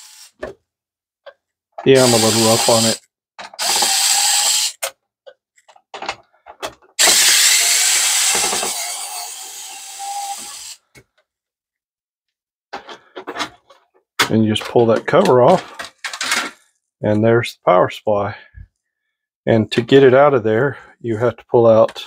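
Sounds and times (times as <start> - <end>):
electric screwdriver running: 2.0 - 3.0, 3.6 - 4.8, 7.0 - 10.8.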